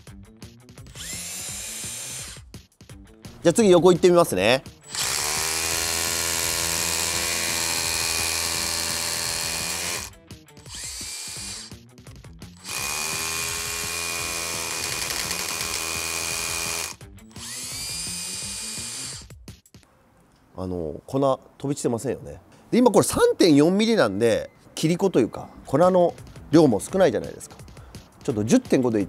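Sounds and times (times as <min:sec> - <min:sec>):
hammer drill drilling into concrete: 0:00.9 - 0:02.4, 0:04.9 - 0:10.1, 0:10.7 - 0:11.8, 0:12.6 - 0:19.3.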